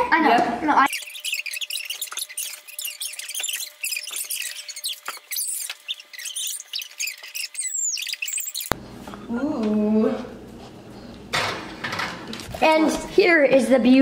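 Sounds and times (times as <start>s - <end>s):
sped-up squeaky chatter: 0.8s - 8.7s.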